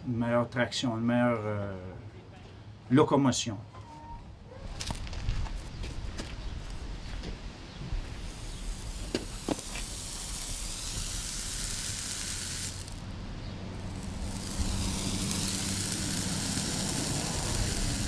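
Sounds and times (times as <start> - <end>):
hot horseshoe sizzling on hoof: 7.8 - 18.0.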